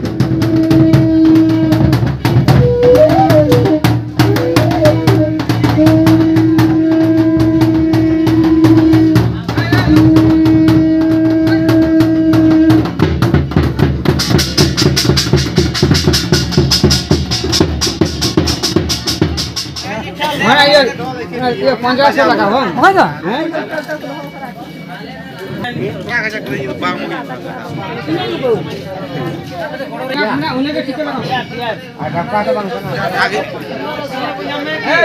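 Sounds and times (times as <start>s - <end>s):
barrel drums drumming: 0.0s - 23.1s.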